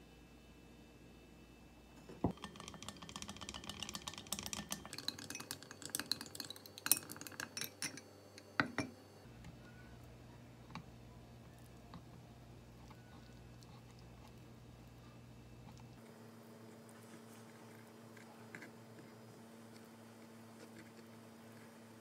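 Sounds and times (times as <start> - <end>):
utensil beating in glass bowl: 2.3 - 8.0.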